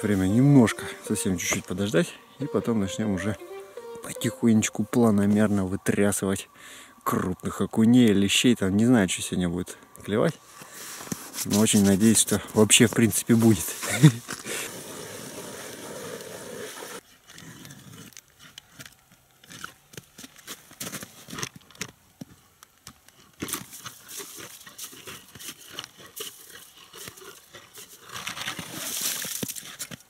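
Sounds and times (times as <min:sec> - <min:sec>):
ice auger rasping through ice: 0:10.6 - 0:19.8, 0:23.4 - 0:30.0
ice chips spilling: 0:28.1 - 0:29.9.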